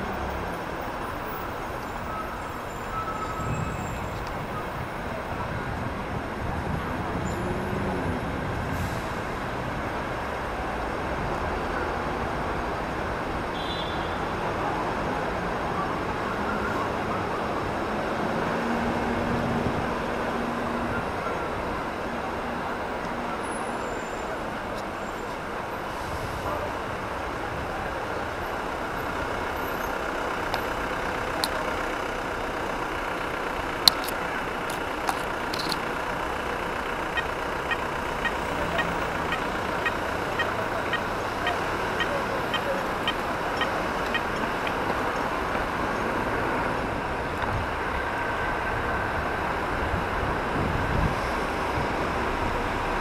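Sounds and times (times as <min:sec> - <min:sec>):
car engines idling: 0:00.0 - 0:53.0
road noise: 0:00.0 - 0:53.0
regular ticking: 0:36.9 - 0:46.2.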